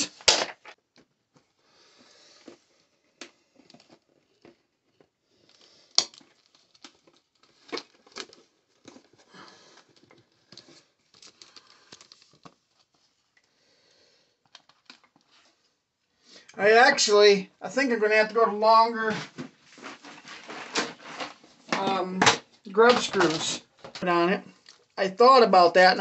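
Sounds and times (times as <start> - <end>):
plastic shell rustles and taps: 19.2 - 24.0.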